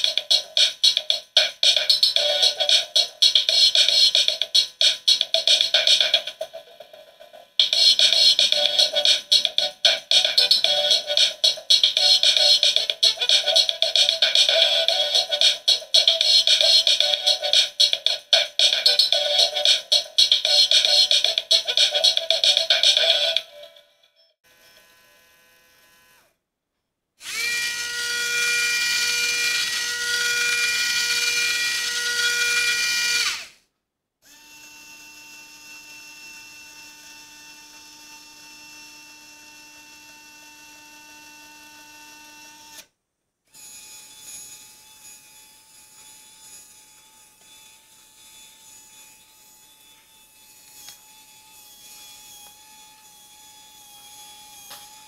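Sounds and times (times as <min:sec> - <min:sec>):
small electric motors whirring: 0:27.2 - 0:33.6, 0:34.2 - 0:42.9, 0:43.5 - 0:55.0.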